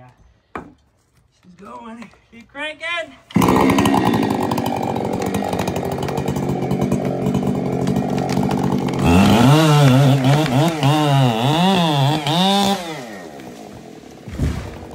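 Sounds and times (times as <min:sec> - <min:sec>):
chainsaw revving: 0:03.3 - 0:14.9.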